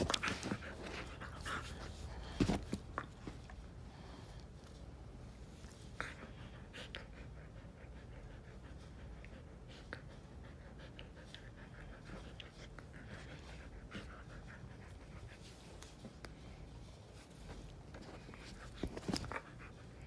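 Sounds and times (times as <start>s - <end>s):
dog panting: 5.9s - 17.1s.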